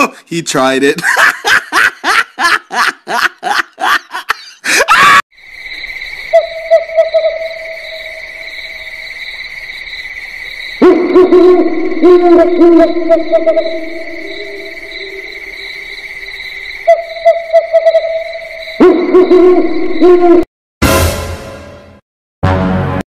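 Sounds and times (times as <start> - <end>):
cricket trill: 1.0 - 20.4
owl hooting: 6.3 - 8.1, 10.8 - 16.0, 16.8 - 20.4.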